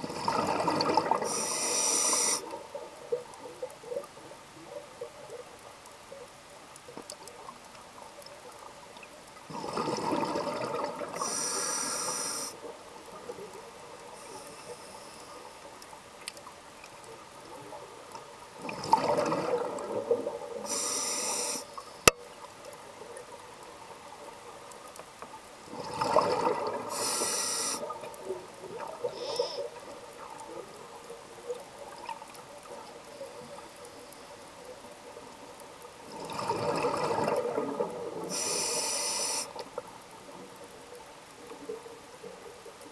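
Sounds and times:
regulator breathing bubbles and hiss: 0.3 - 2.6, 11.1 - 12.6, 20.6 - 22.0, 26.8 - 28.0, 29.1 - 29.8, 38.3 - 39.6.

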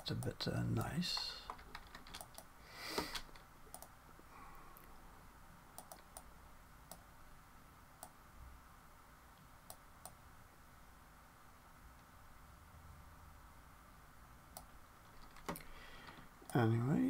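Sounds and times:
computer mouse clicking: 1.2 - 3.9, 5.8 - 6.3, 9.6 - 10.2, 14.5 - 16.6.

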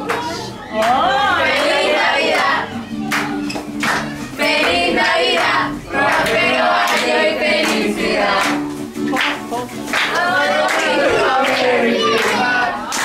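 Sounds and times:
musical accompaniment: 0.0 - 13.0
group of voices singing: 1.1 - 3.4, 4.1 - 8.8, 9.9 - 13.0.

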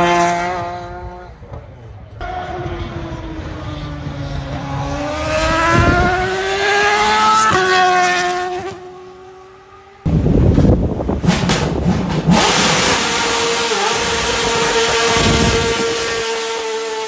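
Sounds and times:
rough engine noise: 0.0 - 17.0
racing car engine accelerating past: 2.2 - 10.1.

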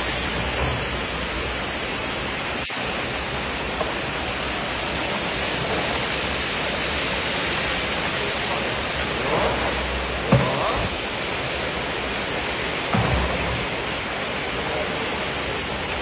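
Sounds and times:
carrots sizzling in hot oil: 2.6 - 13.6.

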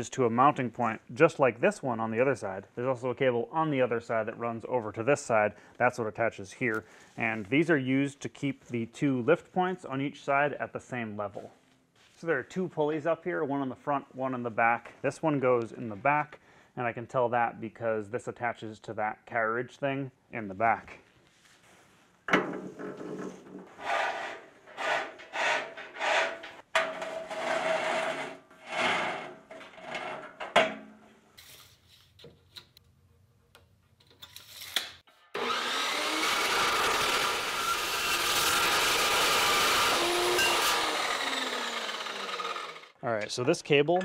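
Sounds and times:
steel cable rasping and scraping: 23.7 - 30.1, 35.4 - 43.0
chop saw cutting steel pipe: 35.3 - 43.0.

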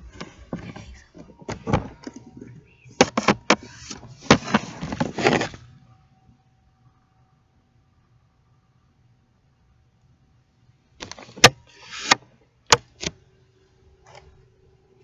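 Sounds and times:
recording device handling noise: 0.0 - 5.8, 11.0 - 13.2, 14.0 - 14.5.

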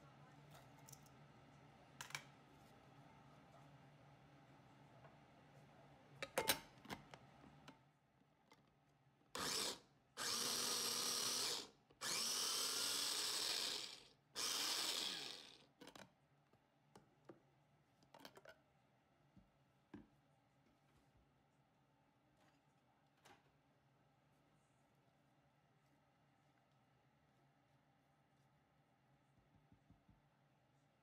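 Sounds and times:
food chopper motor whining: 9.4 - 15.6.

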